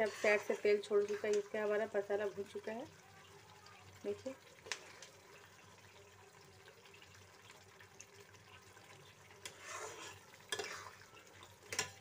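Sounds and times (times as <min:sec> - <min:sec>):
metal spatula scraping pan: 0:00.0 - 0:01.4, 0:09.4 - 0:11.0
food sizzling in oil: 0:00.0 - 0:12.0.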